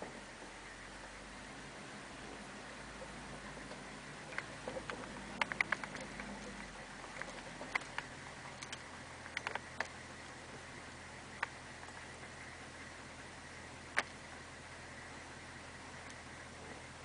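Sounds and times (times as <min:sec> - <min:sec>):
faint steady hiss: 0:00.0 - 0:17.0
light clicks and ticks: 0:03.0 - 0:10.6, 0:11.3 - 0:12.1, 0:16.0 - 0:16.2.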